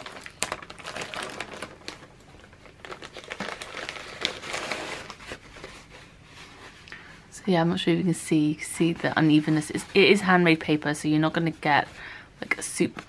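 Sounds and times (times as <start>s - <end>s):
plastic packaging crinkling: 0.0s - 6.9s.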